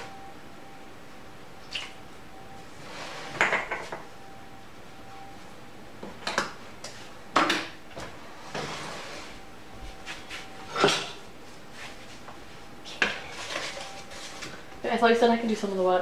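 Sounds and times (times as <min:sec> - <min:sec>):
kitchen utensils clinking: 0:10.7 - 0:11.2.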